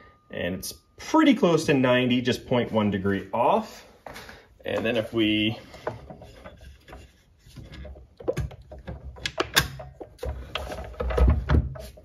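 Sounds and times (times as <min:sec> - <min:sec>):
metal clicks and knocks: 0:05.8 - 0:12.0.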